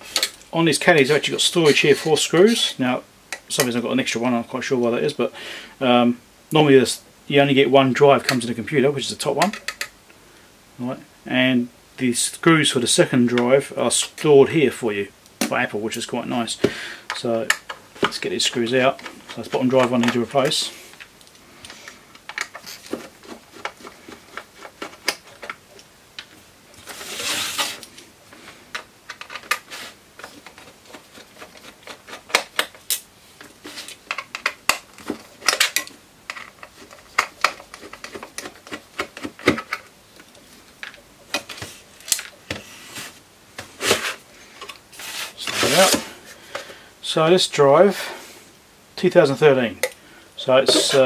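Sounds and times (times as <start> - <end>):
scraping rustle: 26.7 - 28.6, 33.3 - 34.1, 41.4 - 46.5, 50.6 - 51.0.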